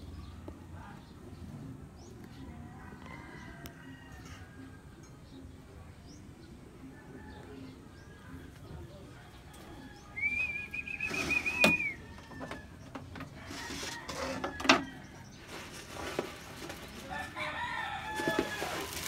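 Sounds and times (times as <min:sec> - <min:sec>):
rooster crowing: 0:17.1 - 0:19.0.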